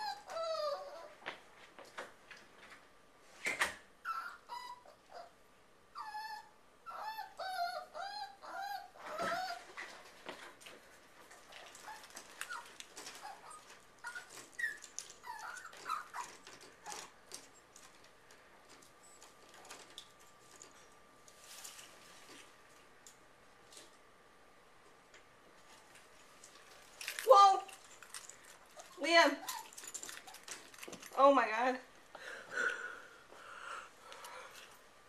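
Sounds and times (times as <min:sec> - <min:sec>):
puppy whining: 0:00.0 - 0:01.3, 0:04.0 - 0:10.0, 0:11.6 - 0:17.8, 0:28.7 - 0:30.9.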